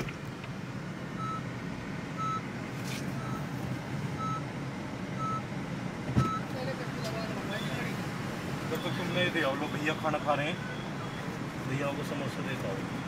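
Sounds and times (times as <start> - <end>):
electronic warning beep: 1.2 - 1.5, 2.2 - 2.4, 3.2 - 3.5, 4.2 - 4.4, 5.2 - 5.4, 6.2 - 6.5, 9.6 - 11.3.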